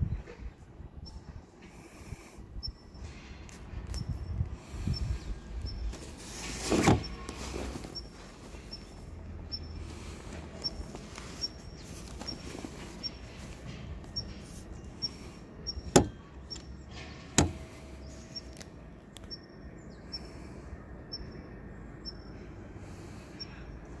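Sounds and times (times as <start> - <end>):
faint high chirp: 7.0 - 9.9, 14.1 - 16.9, 19.2 - 22.5.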